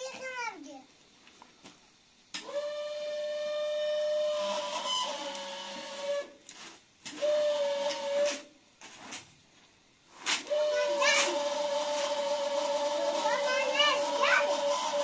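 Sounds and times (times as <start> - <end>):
straw broom swishing on rugs: 5.9 - 7.4, 8.2 - 14.8.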